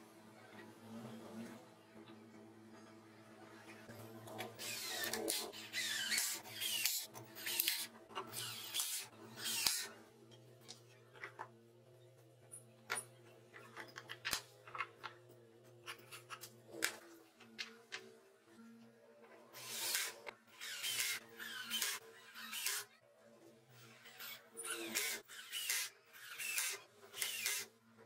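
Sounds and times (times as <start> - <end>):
cordless drill driving screws: 19.6 - 22.8, 24.7 - 27.7.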